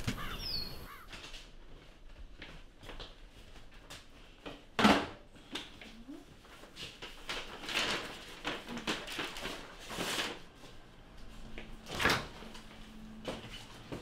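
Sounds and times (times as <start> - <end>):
paper bag rustling: 6.4 - 14.0.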